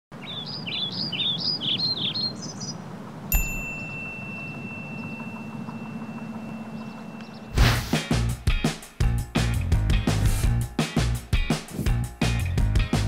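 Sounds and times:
bird chirping: 0:00.1 - 0:02.9, 0:03.8 - 0:07.6
bell-like ding ringing: 0:03.3 - 0:07.5.

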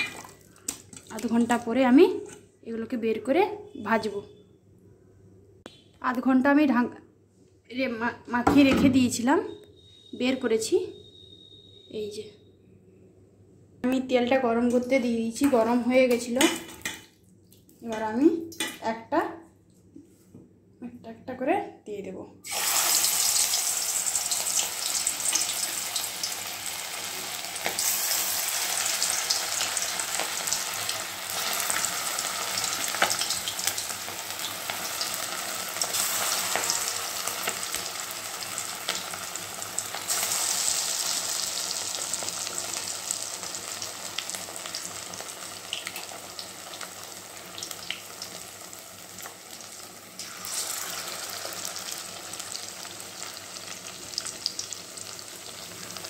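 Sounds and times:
chicken deep-frying in hot oil: 0:22.4 - 0:56.0.

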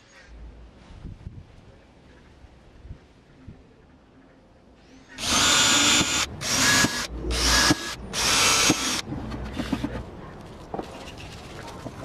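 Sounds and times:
cordless drill boring into wood: 0:05.2 - 0:09.0.

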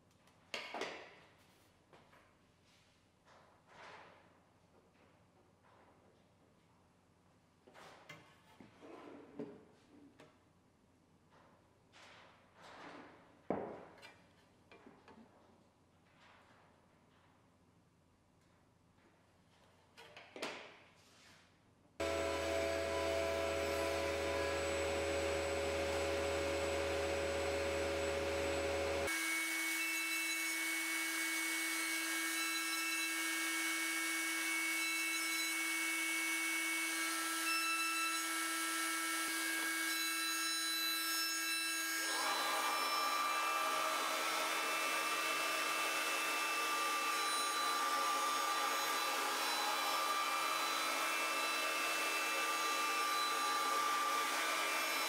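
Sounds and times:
cutting and dust extraction noise: 0:22.0 - 0:37.5, 0:41.9 - 0:55.0
router spindle whine: 0:22.0 - 0:37.5, 0:42.0 - 0:55.0.

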